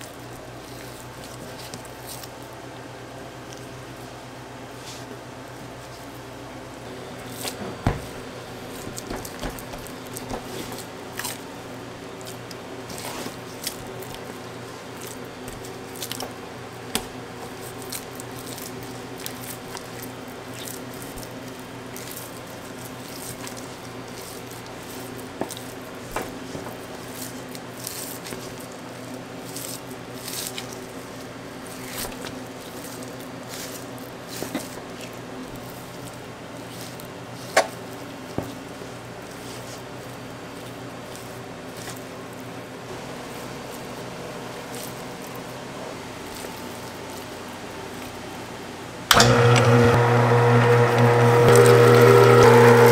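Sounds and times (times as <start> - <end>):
steady machine hum: 6.2 - 19.2, 41.4 - 52.9
blade knocking on cutting board: 7.6 - 8.2, 8.8 - 10.5.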